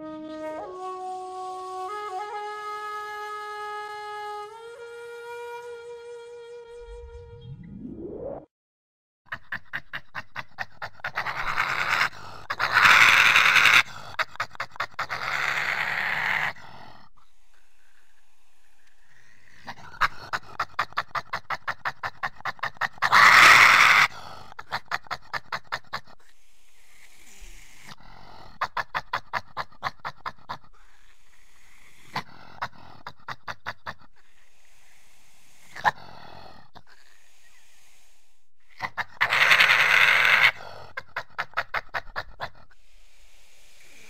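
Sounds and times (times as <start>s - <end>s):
badger screaming: 11.1s - 14.2s, 15.0s - 16.6s, 22.5s - 24.2s, 38.8s - 40.7s.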